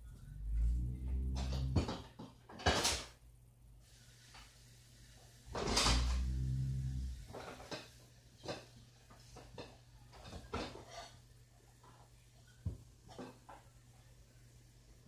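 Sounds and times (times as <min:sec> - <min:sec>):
low dragging scrape: 0:00.0 - 0:01.9, 0:05.5 - 0:07.3
objects knocking and clattering: 0:01.2 - 0:03.1, 0:05.5 - 0:06.6, 0:07.2 - 0:11.1.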